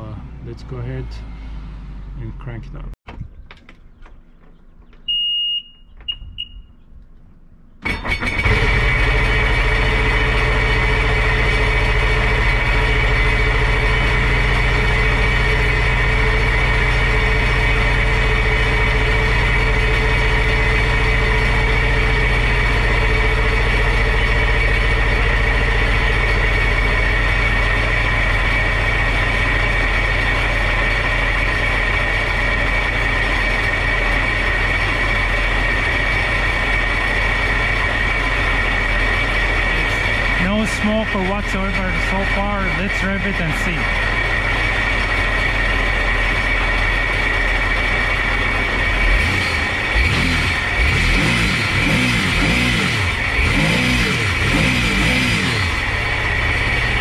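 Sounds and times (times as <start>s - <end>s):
jet ski engine cranking: 7.8s - 9.8s
jet ski engine idling: 7.8s - 51.0s, 53.0s - 57.0s.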